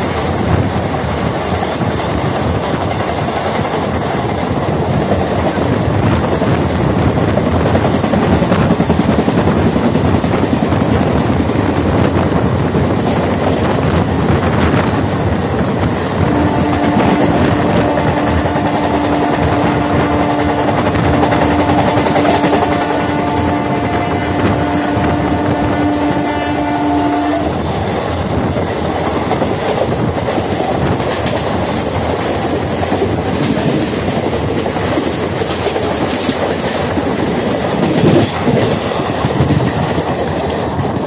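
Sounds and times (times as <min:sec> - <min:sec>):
train rumble and wheel clatter: 0:00.0 - 0:41.0
train horn chord: 0:16.2 - 0:27.6.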